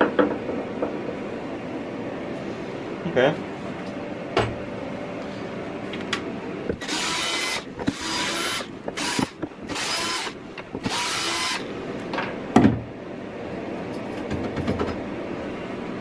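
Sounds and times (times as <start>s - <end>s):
cordless drill whirring: 6.8s - 11.7s.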